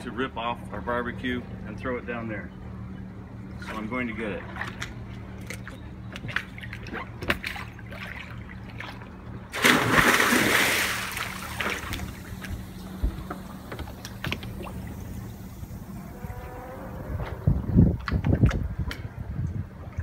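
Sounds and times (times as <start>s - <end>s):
steady low hum: 0.0s - 20.0s
water sloshing: 3.5s - 16.6s
loud splash into water: 9.5s - 12.2s.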